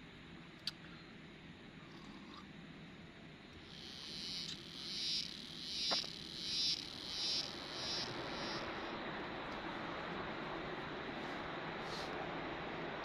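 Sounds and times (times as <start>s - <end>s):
insect high-pitched pulses: 3.6s - 9.1s.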